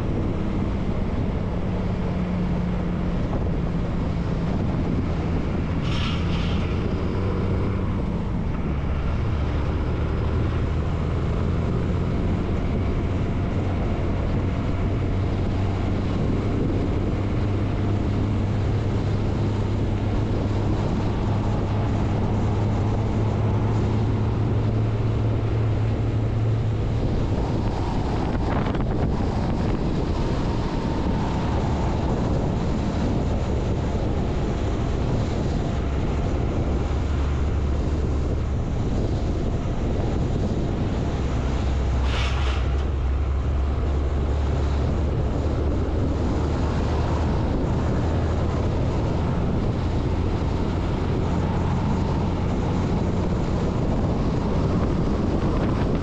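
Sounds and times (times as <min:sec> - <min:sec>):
truck diesel engine running: 0:00.0 - 0:56.0
wind buffeting microphone: 0:00.0 - 0:56.0.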